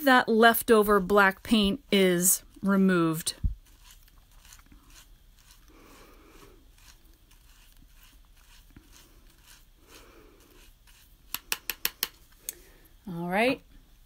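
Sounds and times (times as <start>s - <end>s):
paintbrush swishing in water cup: 0.7s - 11.3s.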